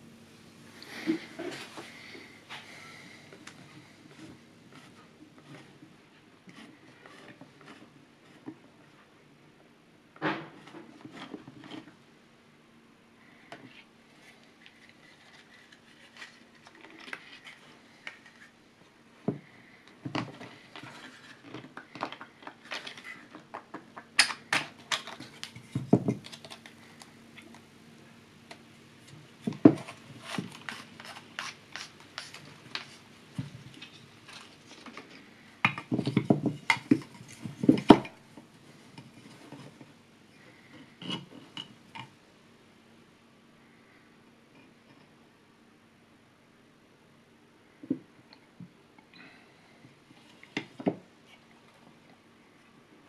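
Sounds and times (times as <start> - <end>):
faint steady hum: 0.0 - 53.0
plastic parts clicking and tapping: 19.3 - 27.6.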